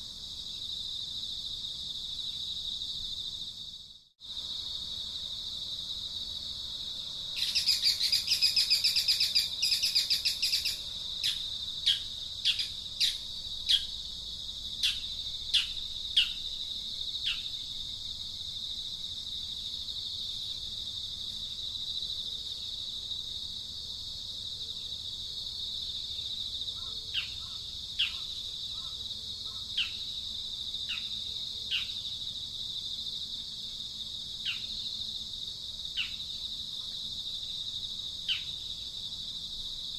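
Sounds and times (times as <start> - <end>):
high-pitched insect drone: 6.8 - 18.0
bird calls: 7.4 - 13.9, 26.8 - 30.0.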